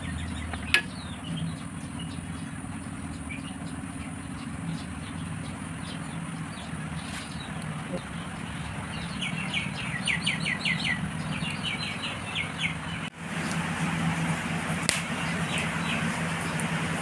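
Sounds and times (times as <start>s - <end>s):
small bird chirping: 0.0s - 13.1s
steady low hum: 0.0s - 17.0s.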